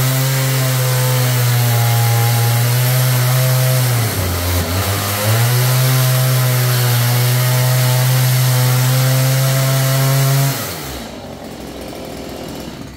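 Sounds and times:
chainsaw cutting wood: 0:00.0 - 0:12.9.

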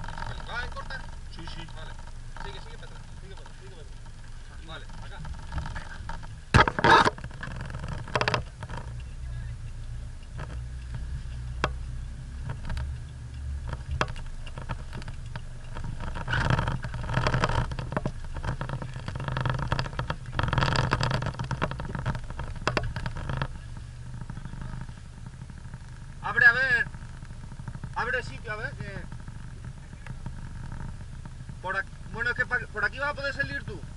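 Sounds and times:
engine idling heard from cab: 0:00.0 - 0:33.9
sharp ticks: 0:00.0 - 0:33.9.

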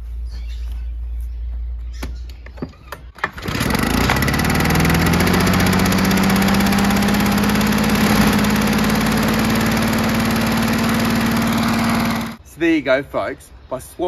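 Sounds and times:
two-stroke mower engine running: 0:03.2 - 0:12.4.

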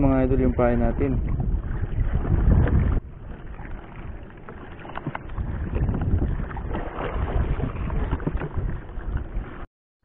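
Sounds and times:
water lapping against boat: 0:00.0 - 0:09.7
wind rumbling on microphone: 0:00.0 - 0:09.7
faint knocks in boat: 0:02.2 - 0:09.3.

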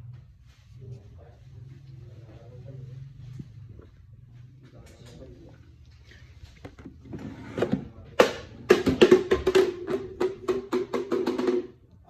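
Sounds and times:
music with drum beat: 0:08.2 - 0:11.8.

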